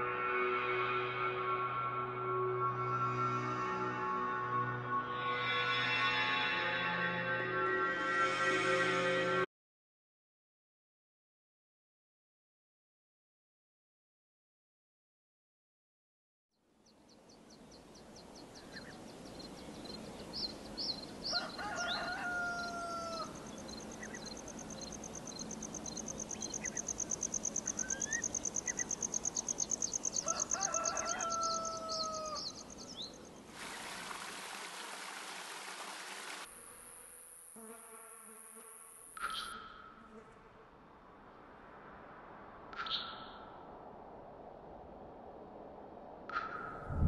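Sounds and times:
rooster crowing: 21.3 - 23.5, 30.2 - 32.6
small birds chirping: 23.5 - 30.2.

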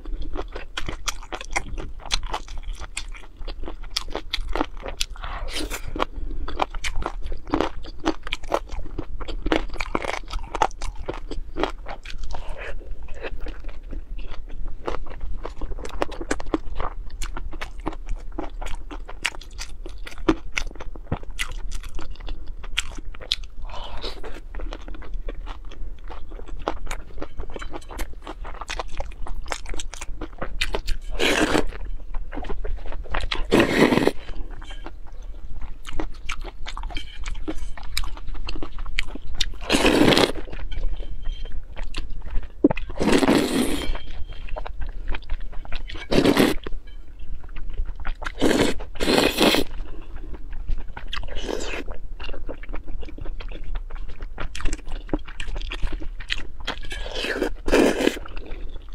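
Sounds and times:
wet chewing and crunching: 0.0 - 58.9
loud noodle slurps: 33.5 - 34.2, 43.0 - 43.8.

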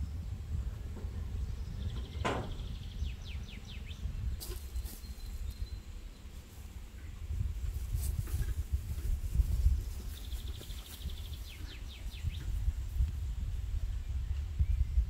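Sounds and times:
wind rumble on microphone: 0.0 - 15.0
bird chirping: 1.0 - 7.3, 9.7 - 12.6.

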